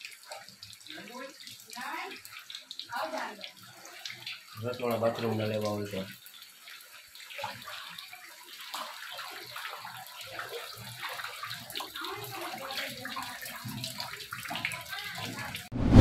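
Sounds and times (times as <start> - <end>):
water sloshing and splashing: 6.7 - 15.7.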